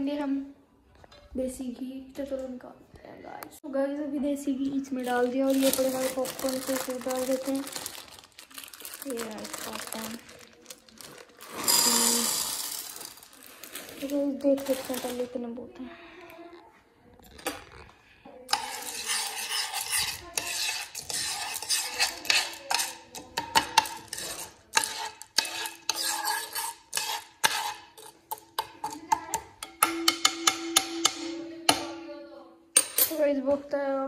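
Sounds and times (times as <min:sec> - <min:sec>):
spoon stirring popcorn kernels in pan: 0:11.0 - 0:15.2, 0:18.5 - 0:31.2.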